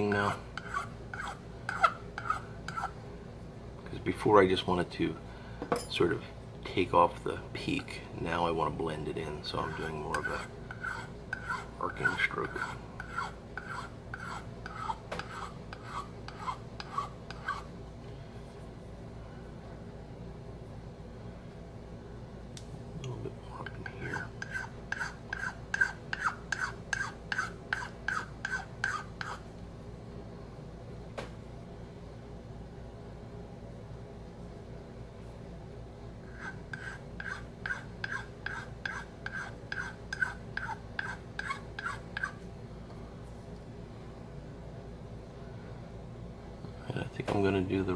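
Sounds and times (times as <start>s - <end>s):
file scraping wood: 0.1s - 2.9s, 9.6s - 17.7s, 24.1s - 29.4s, 36.3s - 42.4s.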